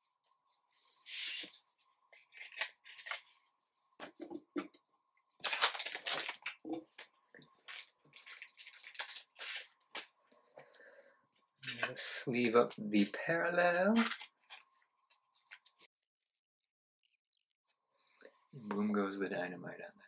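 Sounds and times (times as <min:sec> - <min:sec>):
cards rustling and sliding: 0:01.0 - 0:03.4.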